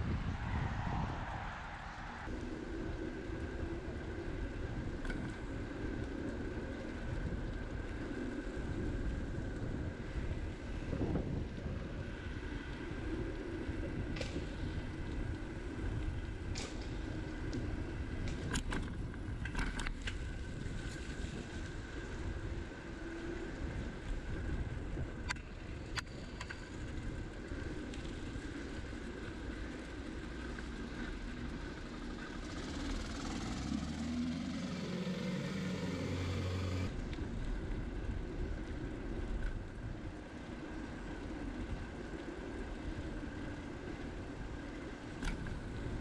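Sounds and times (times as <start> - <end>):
wind and road noise: 0.0 - 46.0
motor vehicle engine: 30.3 - 37.2.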